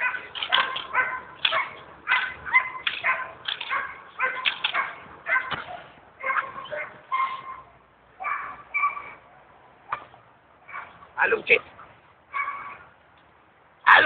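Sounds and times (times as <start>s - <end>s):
dog barking high-pitched: 0.0s - 9.2s, 10.7s - 11.0s, 12.3s - 12.9s.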